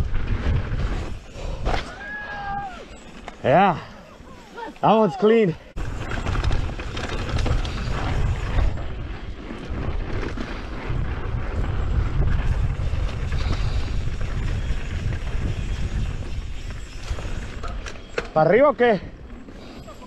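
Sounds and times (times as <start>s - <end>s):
wind buffeting microphone: 0.0s - 2.9s, 5.7s - 18.2s
tyres running over dirt: 0.0s - 20.0s
bike knocks and rattles: 5.8s - 18.4s.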